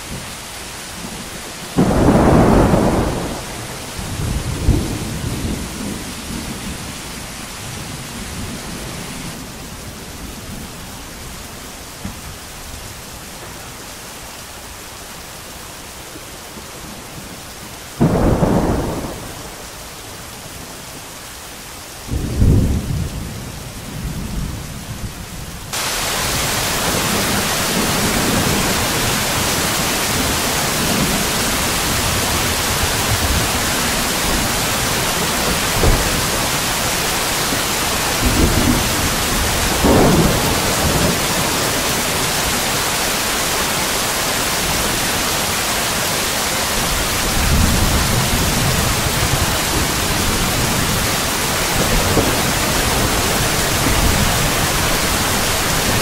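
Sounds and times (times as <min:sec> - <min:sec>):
rain hiss: 0:00.0 - 0:56.0
thunder rolling: 0:01.0 - 0:09.5, 0:18.0 - 0:19.6, 0:25.7 - 0:42.6, 0:46.9 - 0:56.0.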